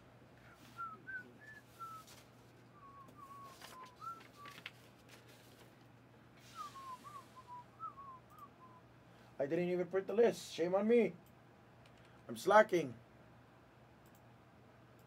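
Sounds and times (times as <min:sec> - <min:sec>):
person softly whistling: 0:00.4 - 0:04.6, 0:06.4 - 0:08.9.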